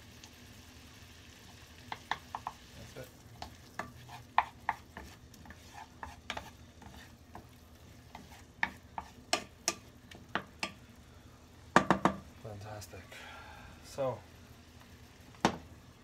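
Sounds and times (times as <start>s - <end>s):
faint sizzle: 0.0s - 16.0s
wooden spatula knocking on pan: 1.9s - 2.7s, 3.4s - 5.2s, 8.6s - 10.8s, 11.7s - 12.3s, 15.4s - 15.7s.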